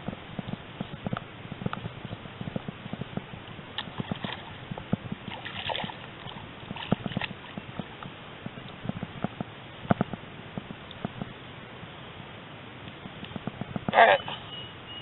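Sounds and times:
water splashing: 0.0 - 11.3.

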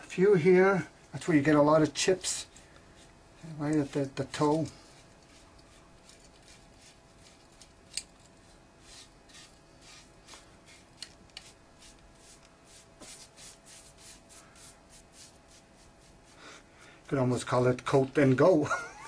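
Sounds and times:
hands rubbing hockey stick: 3.7 - 7.6, 8.4 - 16.4.

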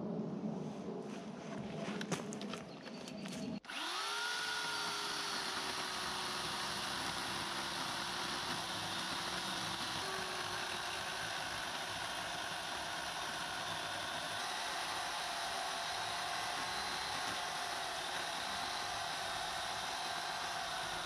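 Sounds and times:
chainsaw cutting wood: 3.7 - 21.0.

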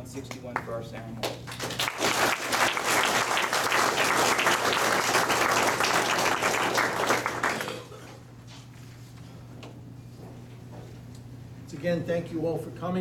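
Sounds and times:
steady low hum: 0.0 - 13.0
audience applauding: 1.5 - 7.9.

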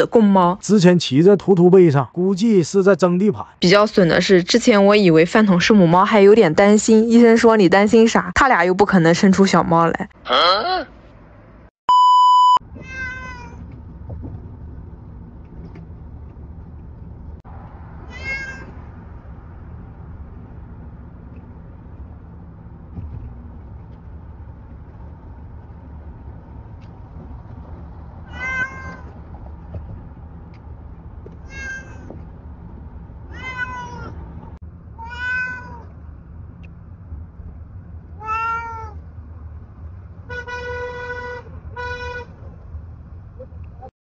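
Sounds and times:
car rumbling while moving: 12.6 - 43.9
cat meowing: 12.8 - 13.6, 18.0 - 18.8, 28.2 - 29.2, 31.4 - 32.1, 33.3 - 34.2, 35.0 - 35.9, 38.2 - 39.0.

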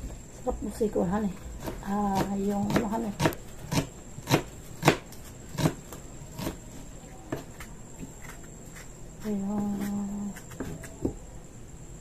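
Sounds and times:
knife chopping on cutting board: 1.6 - 6.6, 9.5 - 11.2.

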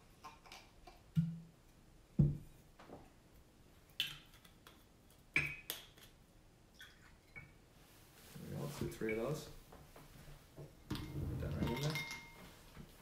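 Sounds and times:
glassware clinking on countertop: 10.9 - 12.5.

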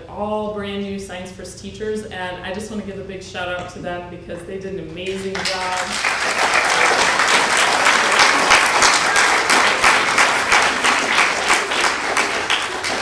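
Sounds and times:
audience applauding: 5.3 - 13.0.

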